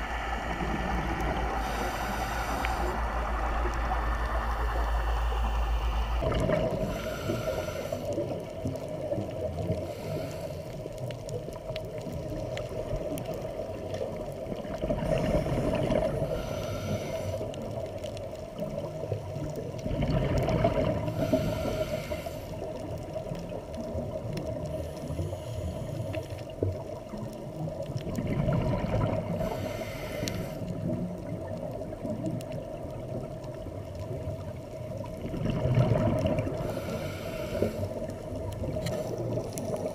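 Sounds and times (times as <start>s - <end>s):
steady hum: 0.0s - 8.5s, 14.8s - 17.7s
regulator inhale hiss: 0.0s - 8.7s, 9.5s - 11.1s, 15.0s - 17.9s, 21.0s - 23.2s, 24.6s - 26.6s, 29.2s - 31.0s, 36.5s - 39.9s
gurgling exhaled bubbles: 0.0s - 39.9s.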